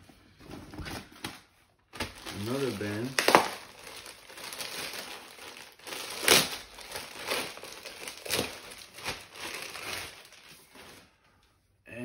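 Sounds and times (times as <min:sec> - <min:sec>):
wrapping paper tearing and crumpling: 0:01.9 - 0:11.2.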